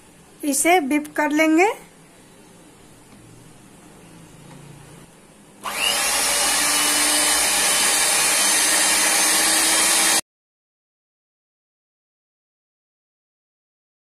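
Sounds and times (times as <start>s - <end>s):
electric hand mixer whisking: 5.6s - 10.2s.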